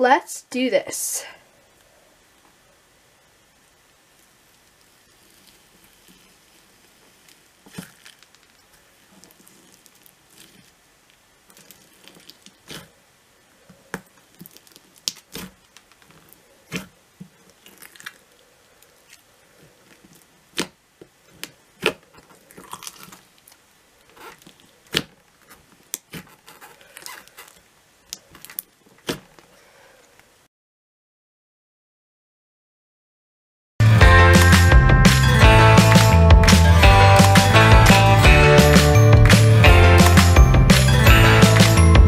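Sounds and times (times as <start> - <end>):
slime crunching and popping: 4.5 - 12.9, 13.9 - 23.6, 24.2 - 29.4.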